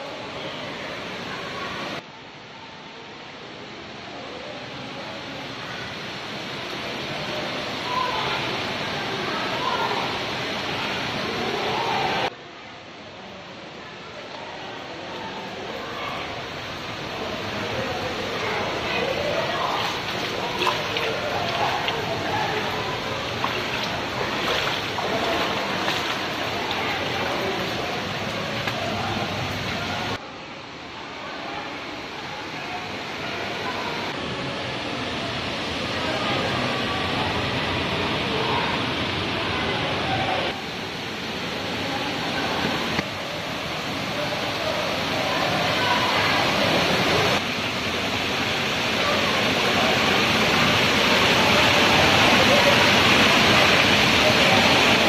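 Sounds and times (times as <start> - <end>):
faint voices of people: 0.0 - 55.0
waterfall rushing: 3.6 - 12.3, 13.9 - 55.0
faint water drips: 18.1 - 30.2
waterfall splashing onto rock: 19.1 - 29.8.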